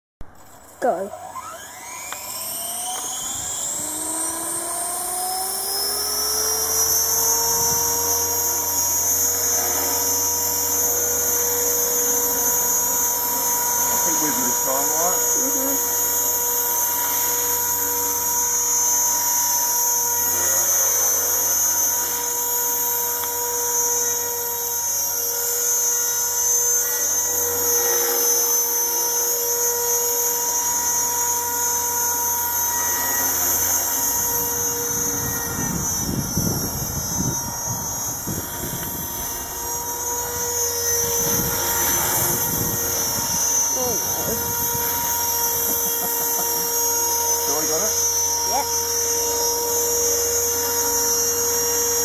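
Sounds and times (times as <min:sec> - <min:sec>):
rc helicopter motor whine: 0:00.2 - 0:52.0
wind buffeting microphone: 0:34.9 - 0:39.8, 0:41.0 - 0:45.3.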